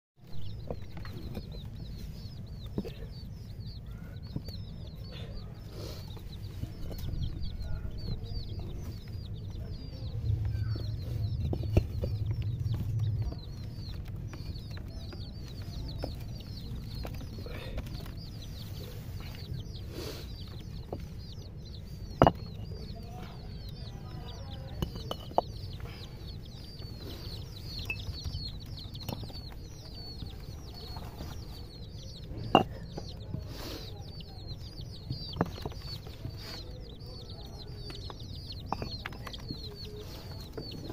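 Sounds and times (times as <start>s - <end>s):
baby chicks peeping: 0.2s - 40.9s
low rumble: 6.3s - 19.6s.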